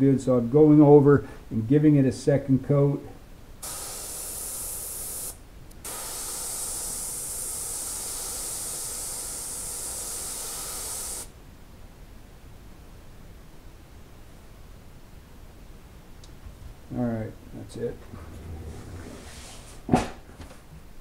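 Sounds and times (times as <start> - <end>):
airbrush spraying hiss: 3.6 - 11.4.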